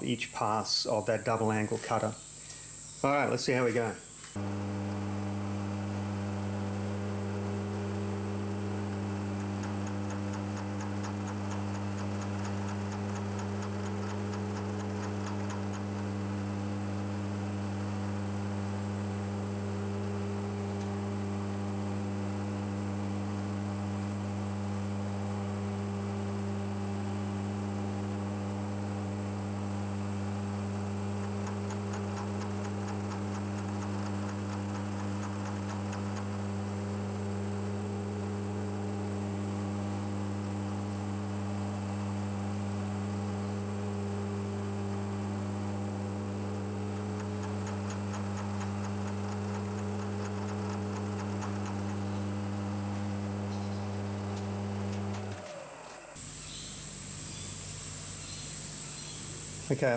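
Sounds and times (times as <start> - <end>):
milling machine humming: 0.0 - 59.9
fast faint ticks: 8.5 - 16.4, 30.9 - 37.2, 46.5 - 52.4.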